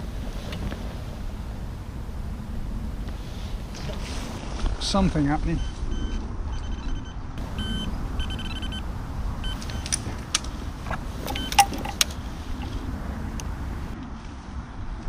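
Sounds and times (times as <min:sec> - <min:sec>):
steady low rumble: 0:00.0 - 0:15.0
rapid electronic beeps: 0:05.6 - 0:09.9
sharp clicks: 0:09.5 - 0:13.6.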